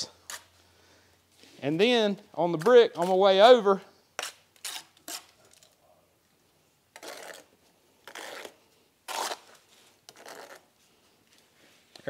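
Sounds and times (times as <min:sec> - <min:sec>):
trowel scraping mortar: 0:00.0 - 0:00.5, 0:01.8 - 0:05.6, 0:06.9 - 0:10.8.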